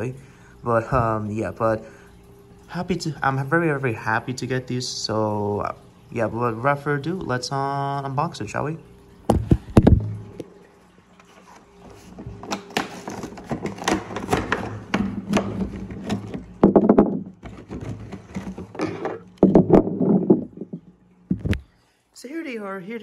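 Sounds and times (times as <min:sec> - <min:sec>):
cardboard and plastic rustling: 0:11.2 - 0:21.7.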